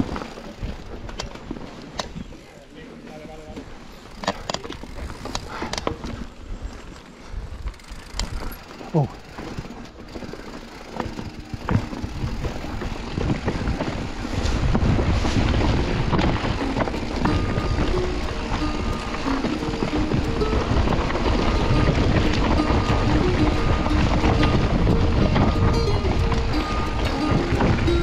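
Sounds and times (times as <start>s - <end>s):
bike clattering over stones: 0.0s - 2.6s, 3.5s - 28.0s
wind rushing over microphone: 11.7s - 28.0s.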